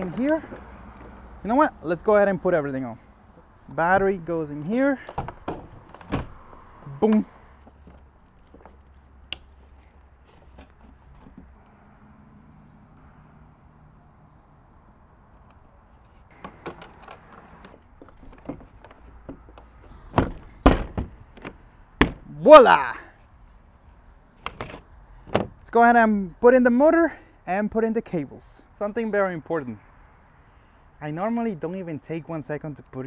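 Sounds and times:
parts rattling: 0:03.2 - 0:11.6, 0:16.0 - 0:22.3, 0:24.4 - 0:25.6
loud knocks: 0:20.1 - 0:22.3.

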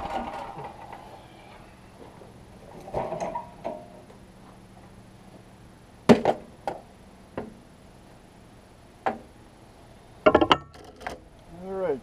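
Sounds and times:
metal tools knocking on workbench: 0:10.3 - 0:10.7.

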